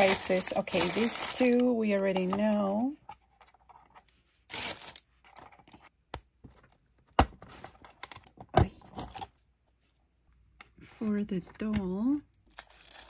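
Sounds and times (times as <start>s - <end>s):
crinkly wrapping paper rustling: 0.0s - 2.8s, 4.5s - 5.1s.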